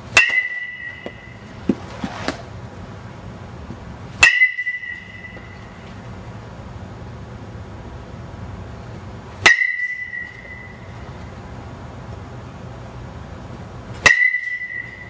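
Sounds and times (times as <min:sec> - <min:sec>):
metal bat pinging ball: 0:00.1 - 0:01.8, 0:04.2 - 0:05.8, 0:09.4 - 0:11.0, 0:14.0 - 0:15.0.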